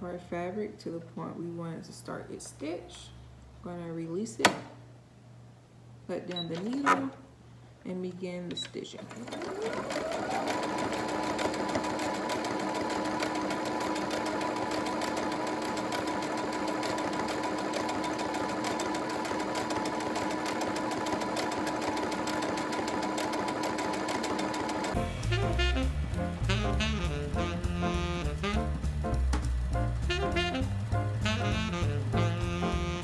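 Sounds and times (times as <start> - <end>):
sewing machine stitching: 8.9 - 25.0.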